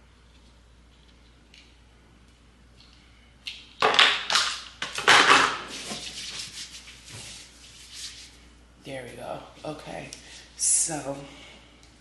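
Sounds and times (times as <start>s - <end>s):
hands rubbing together: 5.7s - 8.4s.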